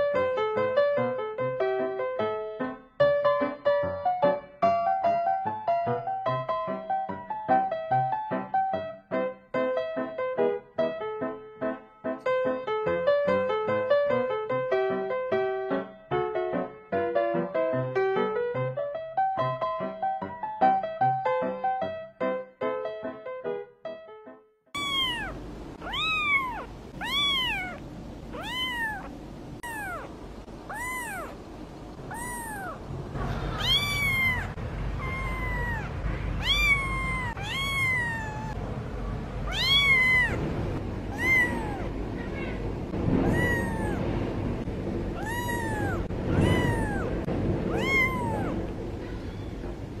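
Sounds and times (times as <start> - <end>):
piano music: 0.0 - 50.0
kitten meowing: 24.8 - 31.4, 32.0 - 38.6, 39.4 - 40.5, 41.1 - 42.6, 43.2 - 44.0, 45.2 - 49.6.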